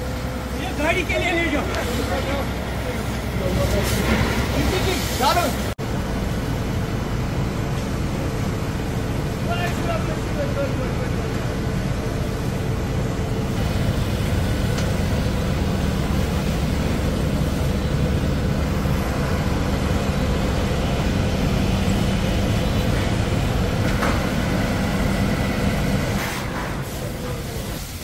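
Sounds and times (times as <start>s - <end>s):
fire engine humming: 0.0s - 28.0s
broad hiss: 26.2s - 28.0s.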